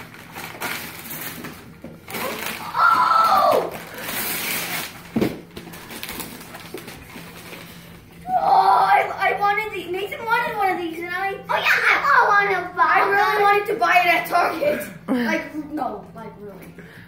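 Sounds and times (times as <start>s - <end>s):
wrapping paper rustling and tearing: 0.0s - 8.1s
child's high voice: 2.1s - 3.7s, 8.2s - 16.3s.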